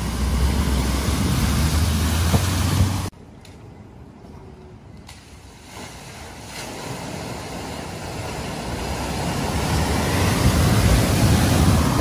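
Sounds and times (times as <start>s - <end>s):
vehicle splashing through flood water: 0.0s - 3.1s, 5.8s - 12.0s.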